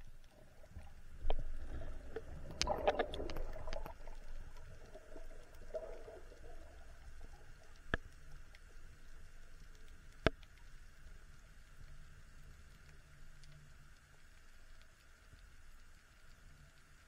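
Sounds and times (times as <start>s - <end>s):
low underwater rumble: 0.0s - 13.3s
sharp underwater clicks: 0.0s - 17.0s
water gurgle: 0.0s - 17.0s.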